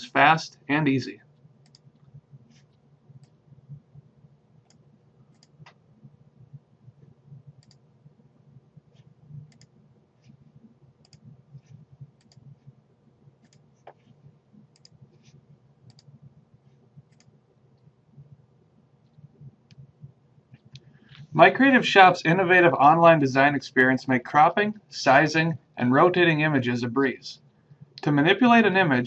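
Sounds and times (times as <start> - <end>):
faint low hum: 0.0 - 29.0
computer mouse clicking: 1.6 - 3.4, 4.6 - 5.8, 7.6 - 7.8, 8.9 - 10.4, 11.0 - 12.5, 13.4 - 14.1, 14.7 - 16.1, 17.1 - 17.9.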